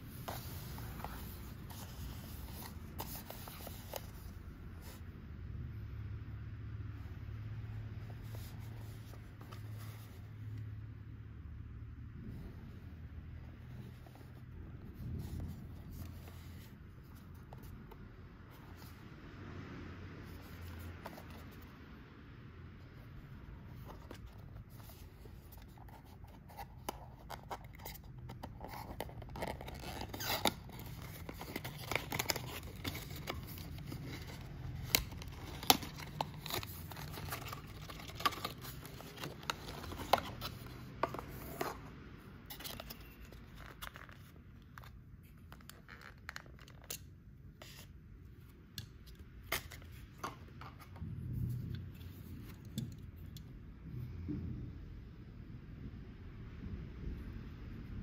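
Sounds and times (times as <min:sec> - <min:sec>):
cardboard sliding and scraping: 0:00.0 - 0:05.0, 0:23.6 - 0:44.3.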